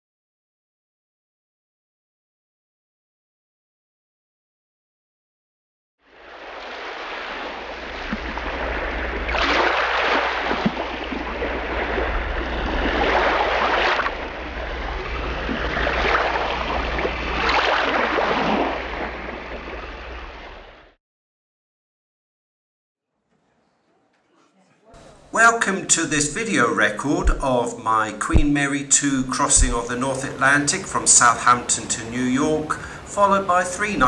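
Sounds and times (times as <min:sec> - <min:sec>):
waves rushing and breaking: 0:06.1 - 0:21.0, 0:28.2 - 0:34.0
steady low rumble: 0:10.3 - 0:20.9.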